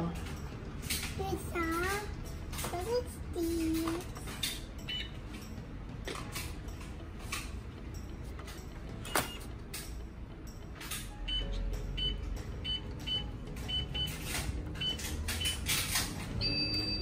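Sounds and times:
plastic toys clicking and knocking: 0.1 - 4.7.

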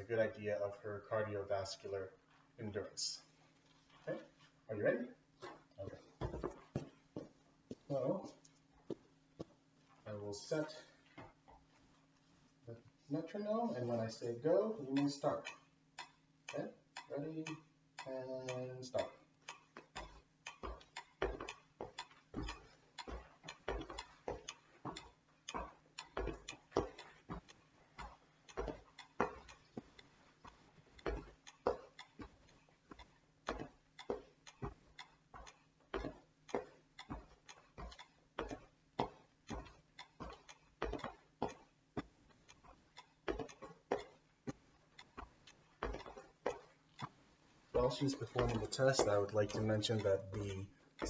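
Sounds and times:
feet stepping on wooden bench: 5.4 - 12.2, 19.0 - 51.0
metronome ticking: 13.0 - 51.0.

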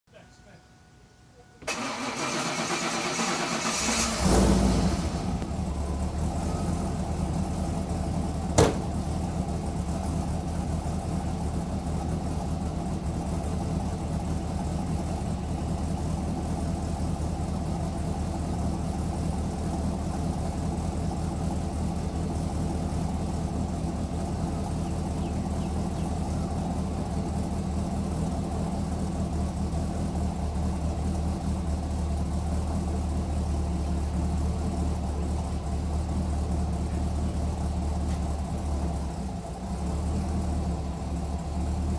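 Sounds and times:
engine starter cranking: 1.6 - 5.3
engine idling: 1.6 - 41.9.

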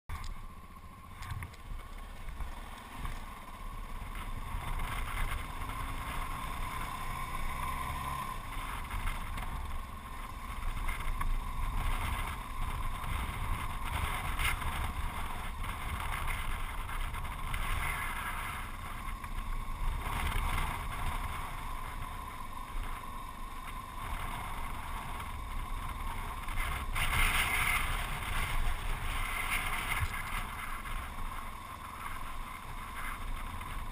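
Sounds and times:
motorcycle engine running: 0.1 - 33.9.

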